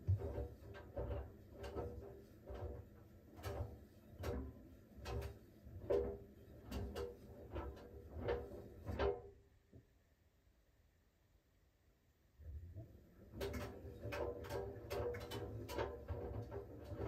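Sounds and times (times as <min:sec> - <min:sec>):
washing machine drum knocking and rattling: 0:00.0 - 0:09.4, 0:12.8 - 0:17.0.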